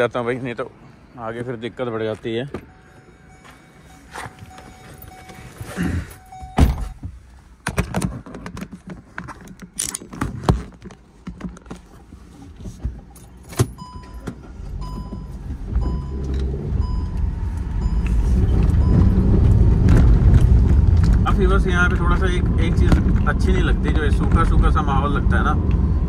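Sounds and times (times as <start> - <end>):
car engine and road rumble: 0.0 - 26.0
short electronic beeps: 2.6 - 6.9, 14.8 - 19.3
sharp clicks and knocks: 6.9 - 11.9.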